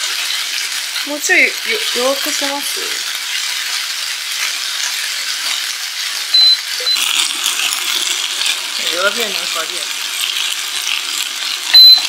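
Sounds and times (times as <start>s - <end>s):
meat and vegetables sizzling in pan: 0.0s - 12.0s
hob beeps: 6.3s - 7.1s, 11.7s - 12.0s.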